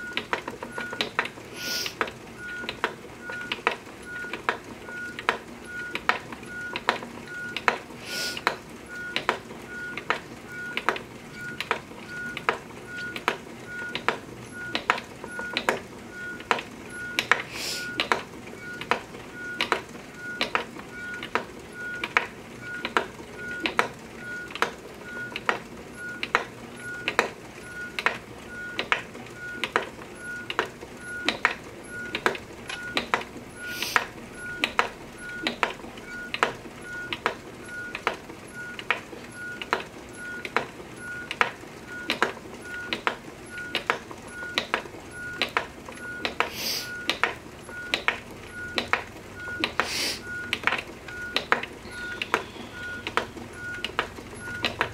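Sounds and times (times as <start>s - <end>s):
brief hisses: 1.6s - 2.0s, 8.1s - 8.4s, 46.5s - 46.9s, 49.8s - 50.2s
spinning wheel wooden clack: 33.9s - 46.5s.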